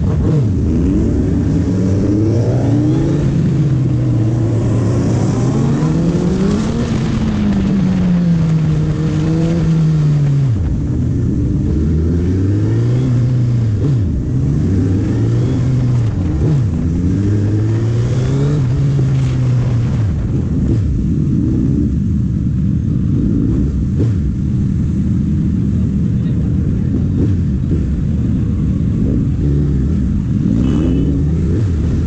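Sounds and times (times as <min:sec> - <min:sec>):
wind rush: 0:00.0 - 0:12.8, 0:13.6 - 0:24.4
motorcycle engine revving: 0:00.0 - 0:32.0.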